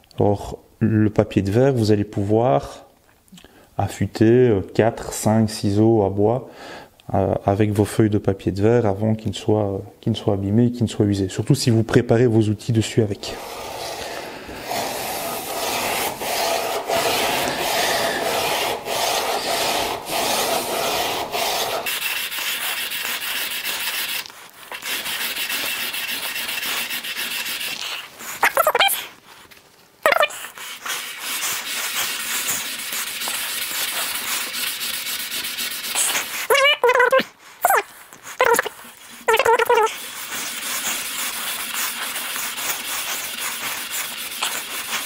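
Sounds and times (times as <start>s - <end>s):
chisel scraping on sandpaper: 13.2s - 29.0s, 30.1s - 36.7s, 37.6s - 45.0s.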